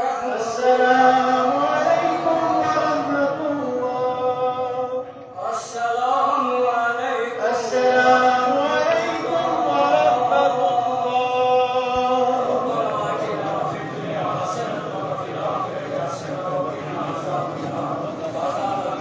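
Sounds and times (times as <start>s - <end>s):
man chanting: 0.0s - 19.0s.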